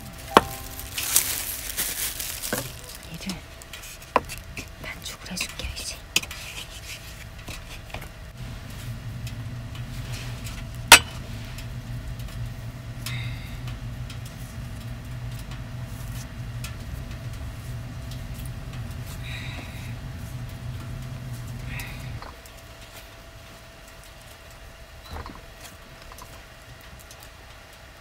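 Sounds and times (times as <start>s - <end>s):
dough being kneaded by hand: 0.0s - 27.2s
steady low hum: 0.0s - 28.0s.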